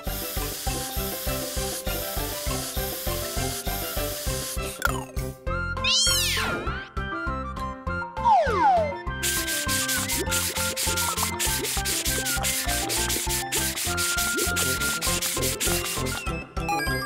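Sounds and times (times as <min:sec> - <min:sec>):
light background music: 0:00.0 - 0:17.0
sponge scrubbing rapidly: 0:09.2 - 0:16.2.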